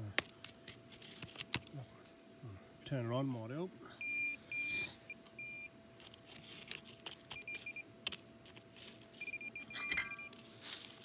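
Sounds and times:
metal detector short beeps: 0:09.2 - 0:10.4.

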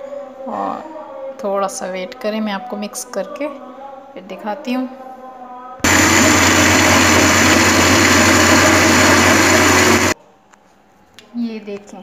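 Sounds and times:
electric blender running: 0:05.8 - 0:10.2.

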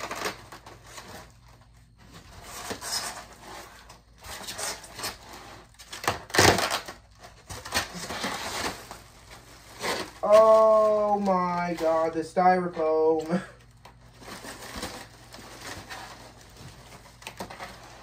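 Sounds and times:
styrofoam rustling and squeaking: 0:00.0 - 0:18.0
cardboard boxes scraping: 0:01.9 - 0:06.6, 0:07.4 - 0:11.2.

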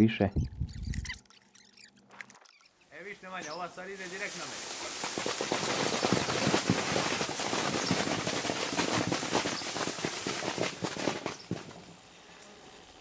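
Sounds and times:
plums falling on plastic sheeting: 0:04.0 - 0:12.0.

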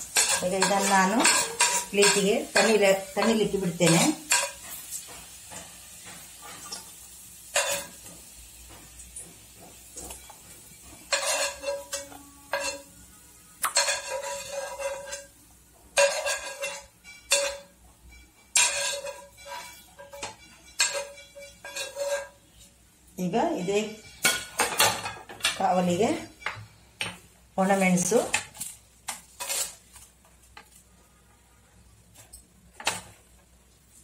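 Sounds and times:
metal utensil clinking on plate: 0:00.1 - 0:06.8, 0:07.5 - 0:08.2, 0:10.0 - 0:13.0, 0:13.6 - 0:15.3, 0:16.0 - 0:22.4.

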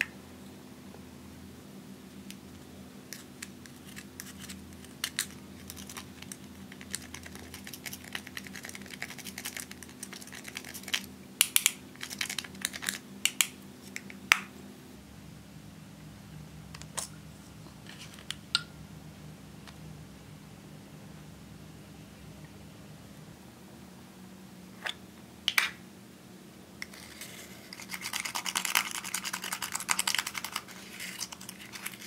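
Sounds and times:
metal spatula scraping makeup: 0:26.8 - 0:32.0.

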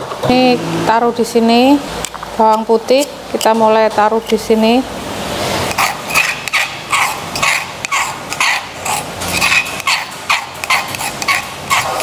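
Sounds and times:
metal spoon scraping stone mortar: 0:05.7 - 0:12.0.

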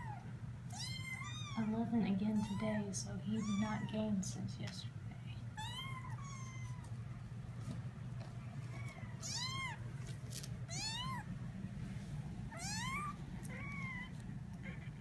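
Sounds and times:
kitten mewing: 0:05.6 - 0:06.8, 0:08.7 - 0:09.8, 0:10.7 - 0:11.3, 0:12.5 - 0:15.0.

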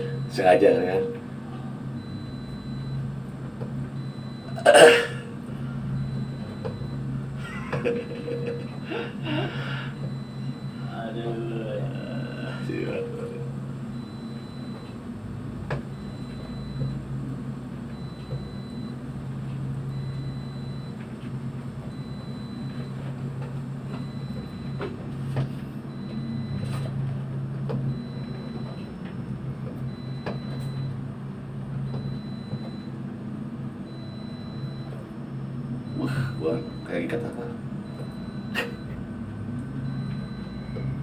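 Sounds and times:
faint high beep: 0:00.0 - 0:01.2
low machinery hum: 0:00.0 - 0:41.0.

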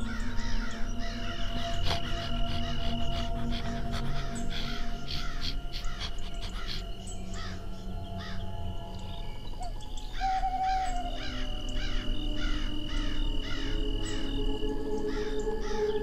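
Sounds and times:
harsh animal calls: 0:00.0 - 0:08.7
background music drone: 0:00.0 - 0:16.0.

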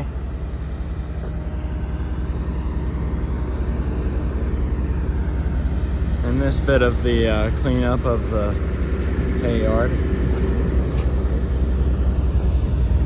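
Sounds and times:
heavy vehicle engine rumble: 0:00.0 - 0:13.0.

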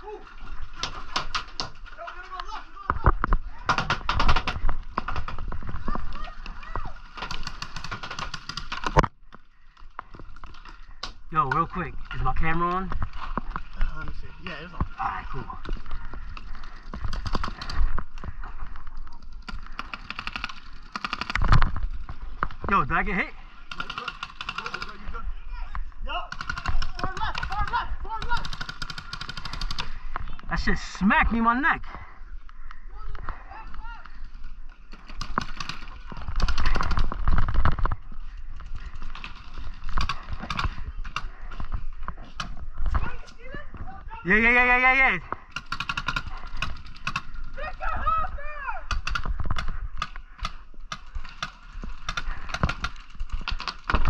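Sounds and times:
paintball markers firing: 0:26.3 - 0:29.9, 0:45.4 - 0:47.4, 0:48.9 - 0:54.0
rumble of movement on microphone: 0:32.5 - 0:44.1.

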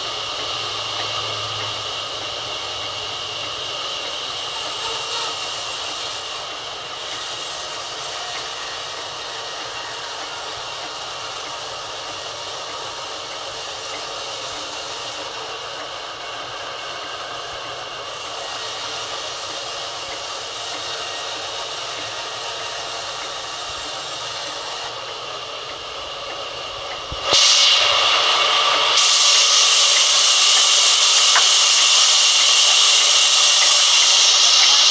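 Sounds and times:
saw blade hissing through log: 0:00.0 - 0:25.0, 0:27.1 - 0:34.9
band saw running: 0:00.0 - 0:34.9.

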